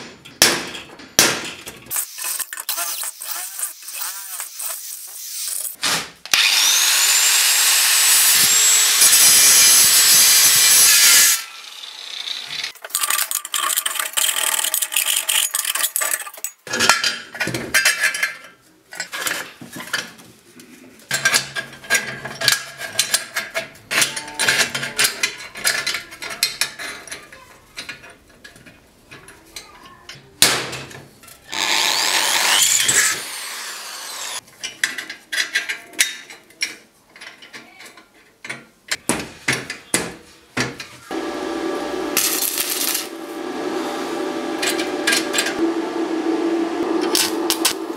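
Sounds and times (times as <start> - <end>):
power tool whining: 6.3 - 12.7, 31.5 - 34.4, 41.1 - 47.9.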